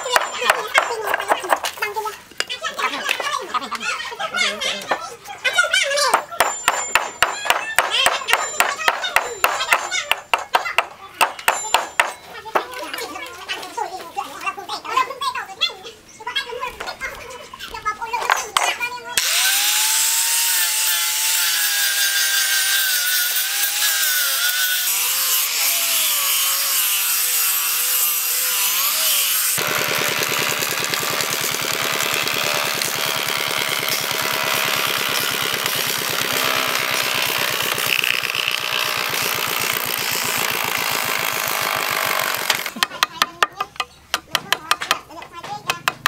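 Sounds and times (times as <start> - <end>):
angle grinder sanding wood: 19.2 - 42.7
wood planer cutting boards: 19.2 - 42.8.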